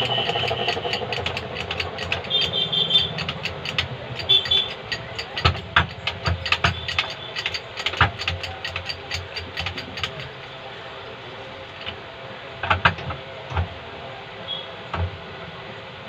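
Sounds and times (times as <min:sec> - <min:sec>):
sharp metallic clicks: 0:00.0 - 0:10.5, 0:12.6 - 0:13.8
machine hum: 0:00.0 - 0:16.0.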